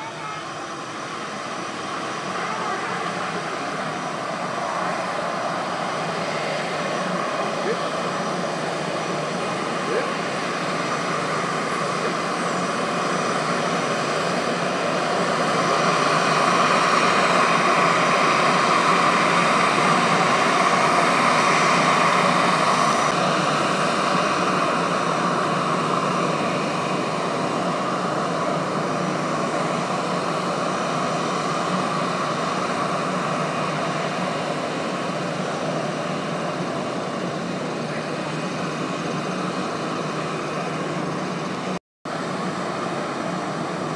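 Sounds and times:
jet engine noise: 0:00.0 - 0:43.9.

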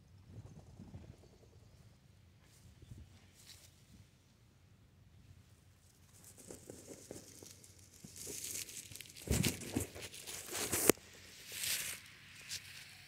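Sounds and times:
dry leaves crunching: 0:06.2 - 0:13.0.

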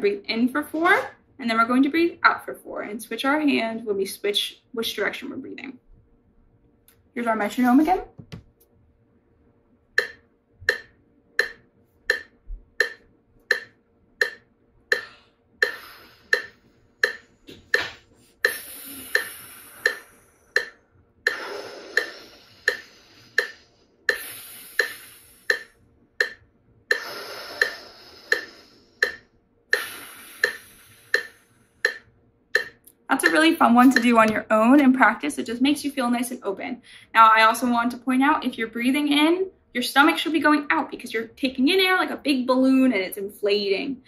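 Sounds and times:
metronome clicking: 0:10.0 - 0:34.4
person breathing through mouth: 0:15.0 - 0:16.6, 0:18.2 - 0:25.7, 0:26.9 - 0:29.2, 0:29.8 - 0:31.8.

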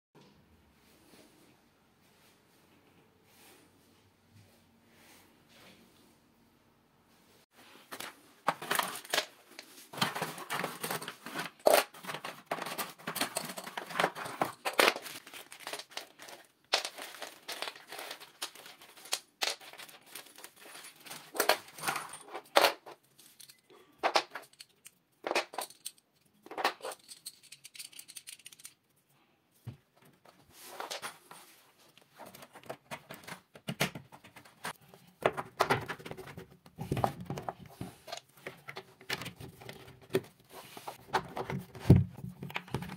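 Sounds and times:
plastic parts clicking: 0:08.0 - 0:28.8.

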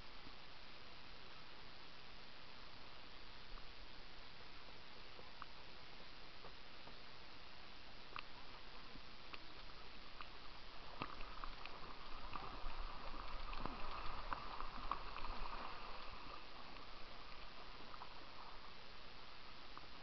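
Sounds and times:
paddle splashing water: 0:08.3 - 0:18.8.

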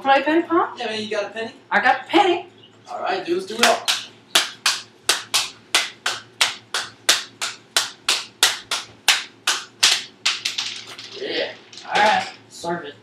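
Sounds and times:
hand claps: 0:03.5 - 0:11.1.

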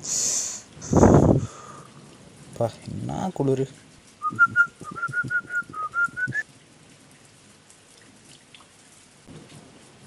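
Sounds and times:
whistled tune: 0:04.2 - 0:06.4.

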